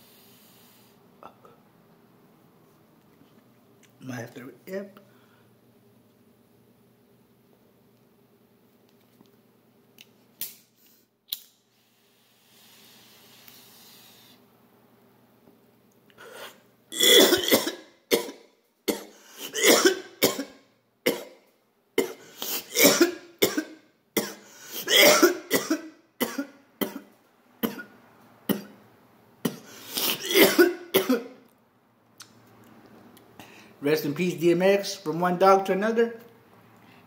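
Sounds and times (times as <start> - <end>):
man coughing harshly: 17.0 - 21.4, 22.0 - 27.9, 29.4 - 31.4.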